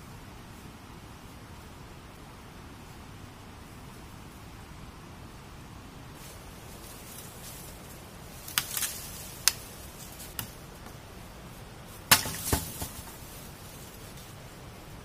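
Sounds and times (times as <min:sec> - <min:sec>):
dry branches cracking and snapping: 0:06.8 - 0:10.6, 0:12.0 - 0:13.6.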